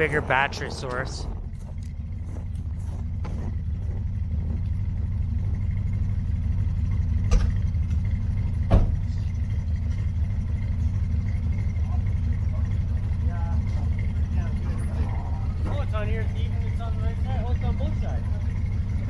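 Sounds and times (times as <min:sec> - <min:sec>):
truck engine idling: 0:00.0 - 0:19.0.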